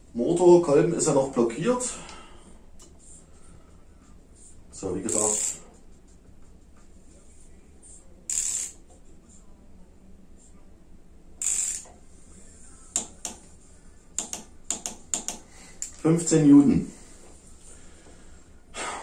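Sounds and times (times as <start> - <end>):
torque wrench ratchet clicking: 5.1 - 5.6, 8.3 - 8.8, 11.4 - 12.0, 13.0 - 13.4, 14.2 - 16.0.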